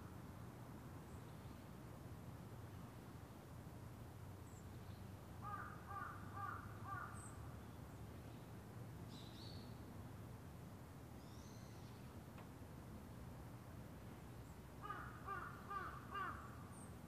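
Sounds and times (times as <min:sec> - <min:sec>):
crow cawing: 0:05.4 - 0:07.2, 0:14.8 - 0:16.6
faint high bird chirps: 0:09.1 - 0:09.8, 0:11.2 - 0:12.1.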